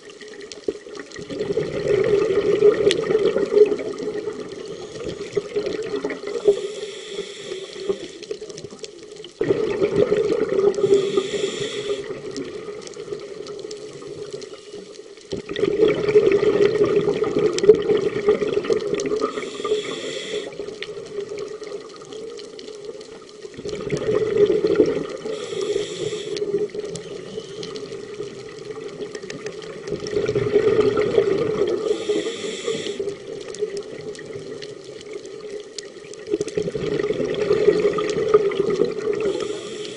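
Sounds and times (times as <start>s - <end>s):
exhaled bubbles: 0.0s - 39.9s
regulator inhale hiss: 4.6s - 5.4s, 6.2s - 8.6s, 10.7s - 12.3s, 14.4s - 15.1s, 19.2s - 20.9s, 25.1s - 28.1s, 31.7s - 33.4s, 39.1s - 39.9s.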